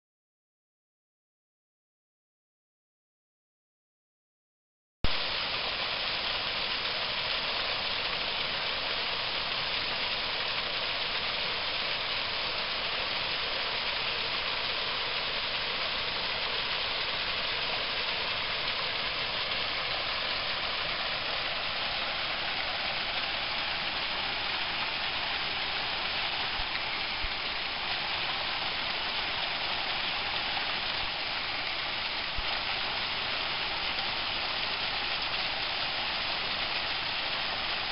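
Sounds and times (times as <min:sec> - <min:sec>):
brook rushing over rocks: 0:15.9 - 0:37.9.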